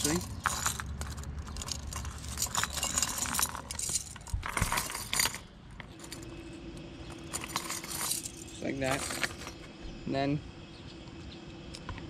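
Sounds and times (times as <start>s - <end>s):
metal chain jangling: 0.0s - 6.4s, 7.1s - 9.7s.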